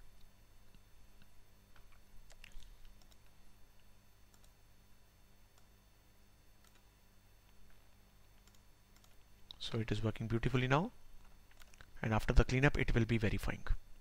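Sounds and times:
low steady hum: 0.0s - 14.0s
faint clicks: 8.4s - 9.6s.

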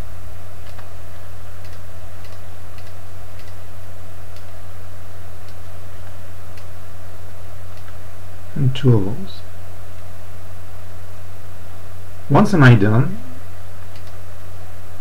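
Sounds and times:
low hum: 0.0s - 15.0s
mouse clicks: 1.6s - 3.6s.

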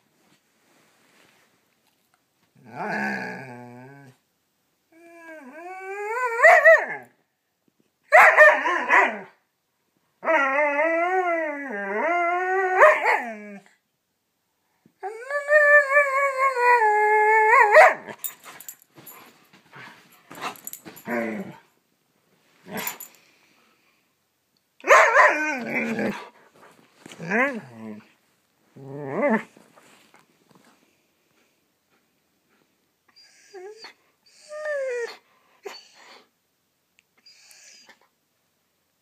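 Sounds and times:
dog yips and barks: 6.3s - 7.0s, 8.1s - 9.3s, 12.8s - 13.3s, 17.5s - 18.7s, 24.8s - 25.6s.

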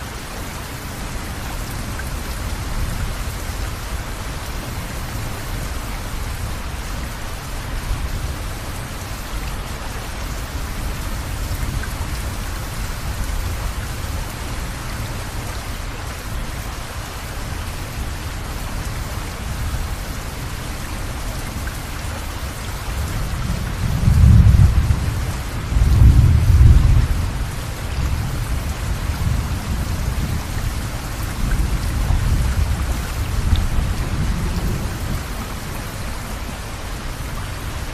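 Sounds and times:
rain hissing: 0.0s - 37.9s
thunder rumbling: 23.2s - 36.0s.

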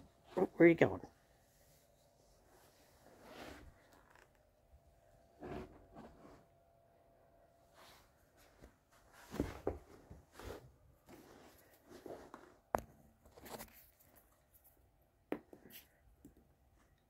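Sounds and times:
rustling and shuffling: 1.3s - 4.6s, 5.2s - 6.6s, 7.6s - 14.9s.

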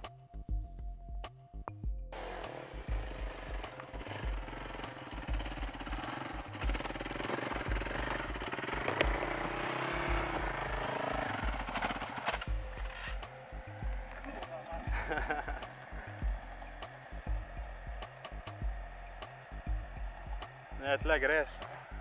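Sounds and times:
dull low thumps: 0.0s - 2.2s, 2.8s - 22.0s
dirt bike engine revving: 2.2s - 22.0s.

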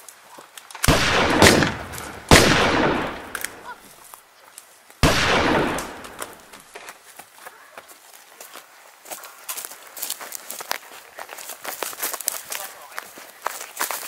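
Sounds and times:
gunshots with echo: 0.9s - 3.7s, 5.0s - 6.4s.

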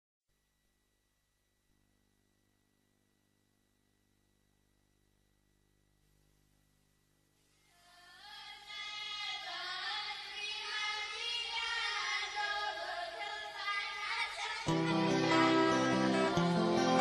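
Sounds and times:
choir of high voices singing: 8.2s - 17.0s
rock band with guitar: 14.7s - 17.0s.

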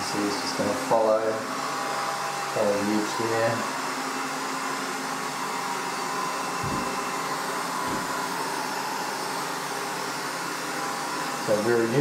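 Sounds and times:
robot vacuum whirring: 0.0s - 12.0s
dull low thumps: 6.6s - 7.0s.

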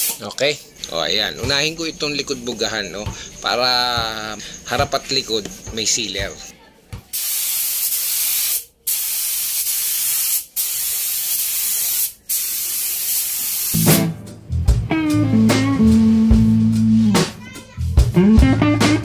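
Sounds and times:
air spray gun hissing: 7.1s - 13.9s
guitar music with bass line: 13.8s - 19.0s.

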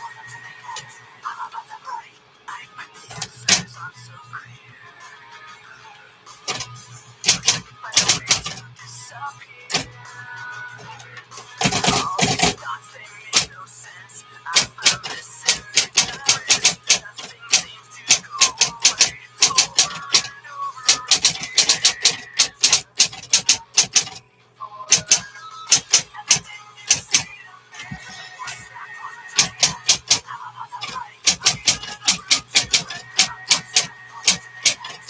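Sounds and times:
typewriter motor hum: 3.1s - 3.7s, 6.5s - 8.6s, 9.7s - 9.9s, 10.8s - 12.6s, 13.3s - 13.5s, 14.5s - 24.2s, 24.9s - 28.6s, 29.4s - 30.2s, 30.8s - 35.0s
typewriter key strikes: 6.5s - 8.6s, 11.6s - 12.6s, 14.5s - 20.3s, 20.9s - 24.2s, 24.9s - 27.3s, 29.4s - 30.2s, 30.8s - 35.0s.

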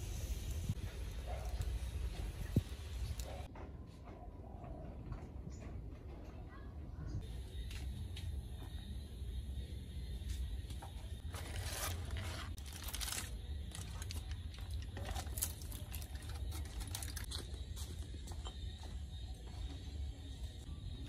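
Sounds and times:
steady low hum: 4.2s - 21.0s
aluminium foil crinkling: 11.2s - 18.1s.

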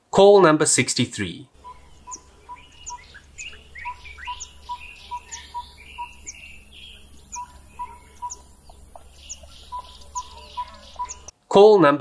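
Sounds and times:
birds chirping and whistling: 1.6s - 11.3s
animal popping call: 7.3s - 11.3s.

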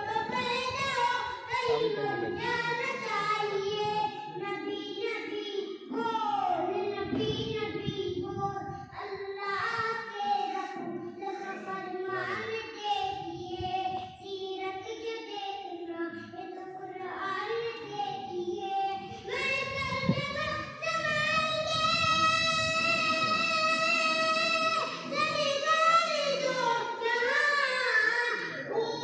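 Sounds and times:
boy singing unaccompanied: 0.0s - 29.0s.

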